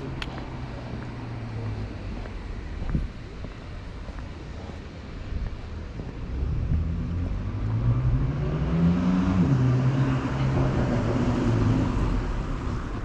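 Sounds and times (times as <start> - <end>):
car engine accelerating: 6.3 - 13.0.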